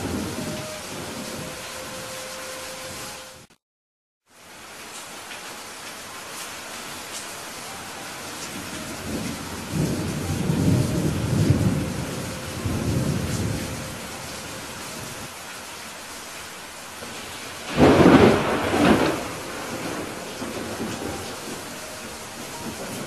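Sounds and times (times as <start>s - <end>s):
low rolling thunder: 0.0s - 2.2s, 8.2s - 15.3s, 17.1s - 23.0s
steady rain falling: 0.0s - 3.5s, 4.2s - 23.0s
sharp thunderclap: 17.7s - 21.6s.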